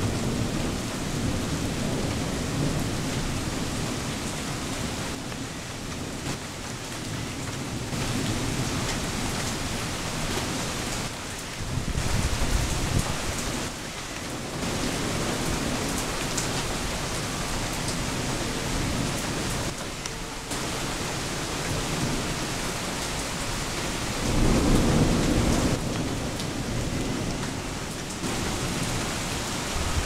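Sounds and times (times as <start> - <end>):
low thunder rumble: 0.0 - 5.2, 20.5 - 30.0
heavy rain: 0.0 - 30.0.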